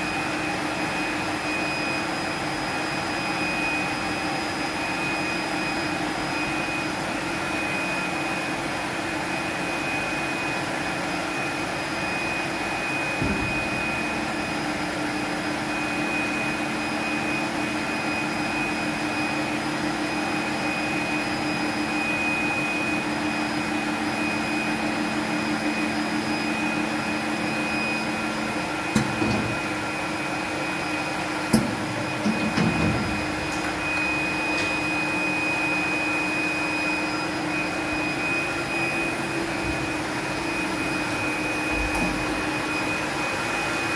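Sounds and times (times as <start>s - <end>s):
high machine whine: 0.0s - 43.9s
lower motor tone: 11.3s - 43.9s
mechanical clunks: 31.5s - 34.8s.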